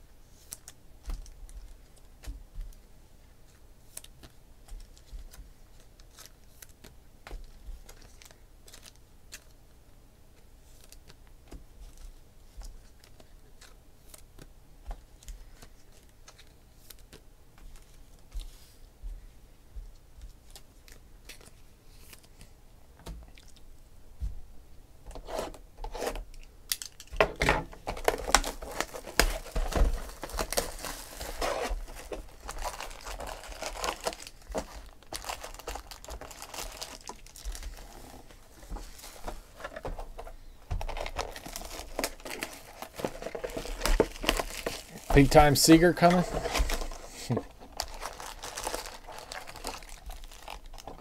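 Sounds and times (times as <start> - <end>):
foil packs crinkling: 27.8 - 51.0
wrapping being torn: 27.9 - 38.1, 40.8 - 51.0.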